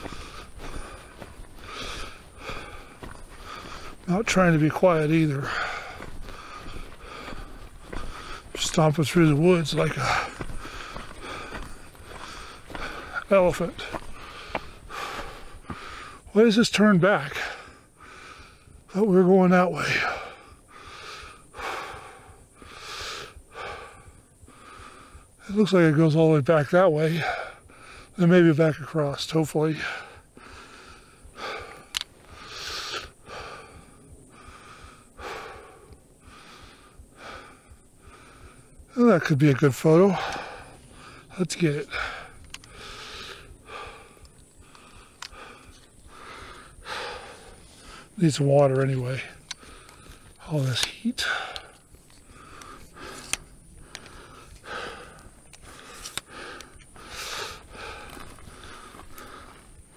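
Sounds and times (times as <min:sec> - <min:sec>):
man breathing through mouth: 0:00.0 - 0:16.3, 0:17.4 - 0:18.8, 0:20.0 - 0:25.4, 0:29.8 - 0:38.9, 0:40.0 - 0:48.3, 0:49.0 - 0:59.9
sharp clicks: 0:31.9 - 0:32.1, 0:42.4 - 0:42.8, 0:44.2 - 0:45.4, 0:50.7 - 0:54.6, 0:55.5 - 0:56.9.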